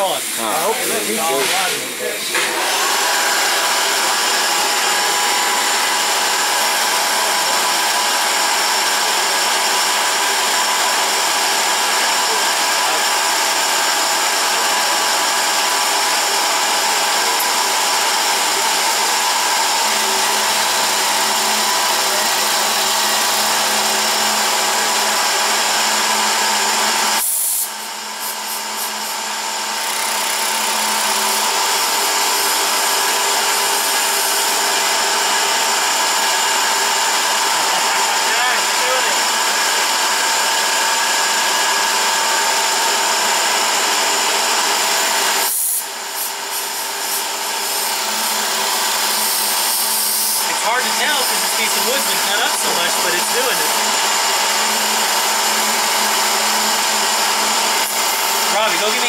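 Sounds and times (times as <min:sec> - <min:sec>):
milling machine spindle whine: 0:00.0 - 0:59.0.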